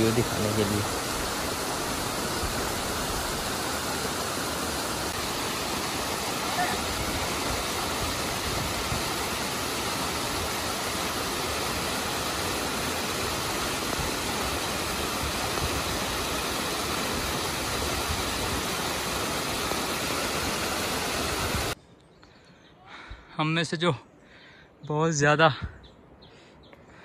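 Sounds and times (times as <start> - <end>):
waterfall rushing over boulders: 0.0 - 21.8.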